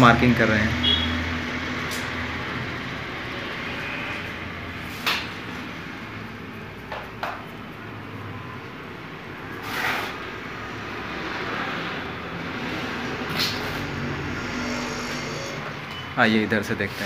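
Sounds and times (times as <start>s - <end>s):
brief rasp: 9.6s - 10.2s
tool scraping plastered wall: 9.6s - 10.5s, 12.6s - 15.8s, 16.7s - 17.0s.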